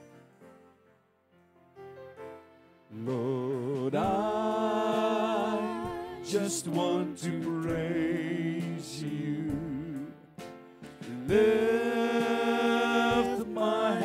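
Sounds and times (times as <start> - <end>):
piano: 0.0 - 14.0
worship band playing: 2.9 - 14.0
singers holding notes with vibrato: 3.0 - 10.1, 11.1 - 14.0.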